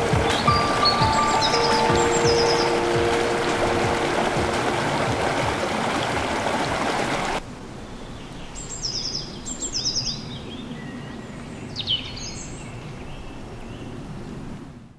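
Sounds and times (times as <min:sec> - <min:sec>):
bird chirping: 0:00.0 - 0:06.0
waterfall rushing into pool: 0:00.0 - 0:07.4.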